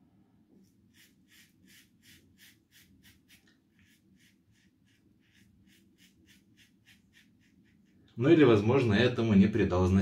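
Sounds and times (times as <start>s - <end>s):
razor scraping stubble: 0.6s - 8.4s.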